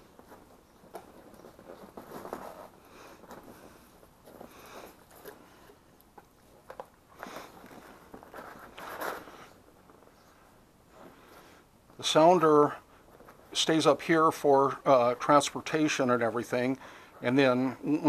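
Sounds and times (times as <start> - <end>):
plastic parts rustling and scraping: 0.0 - 11.6.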